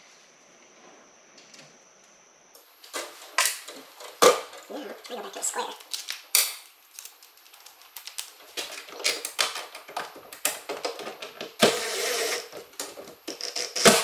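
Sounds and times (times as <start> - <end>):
cordless drill running: 11.6 - 12.5.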